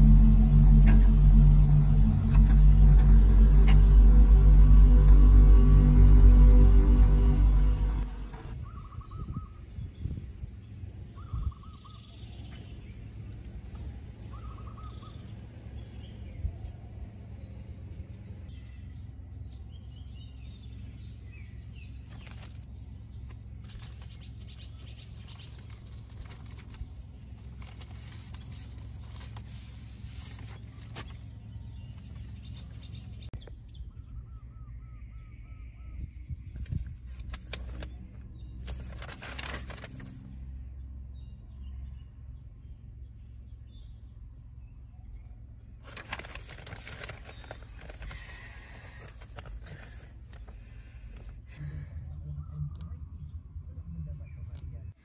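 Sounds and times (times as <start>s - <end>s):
low steady hum: 0.0s - 9.0s, 12.7s - 55.0s
clicks and rustles: 22.0s - 31.2s
birds chirping: 30.3s - 37.0s.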